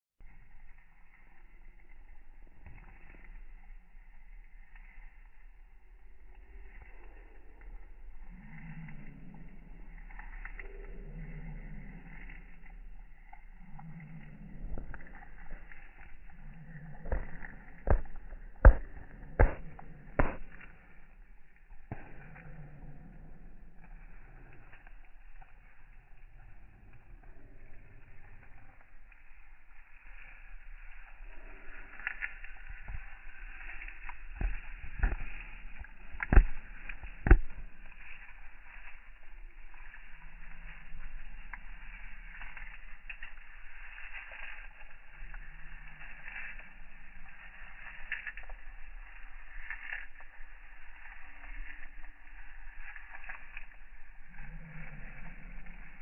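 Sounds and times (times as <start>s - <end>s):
rabbit chewing greens: 5.8s - 21.0s, 31.0s - 56.0s
dull crunching thumps: 16.5s - 20.6s.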